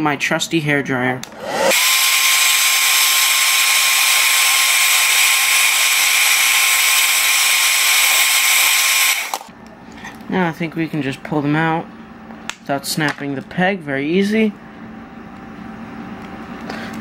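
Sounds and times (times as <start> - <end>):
hair dryer motor whine: 1.2 - 9.5
rush of blowing air: 1.3 - 9.5.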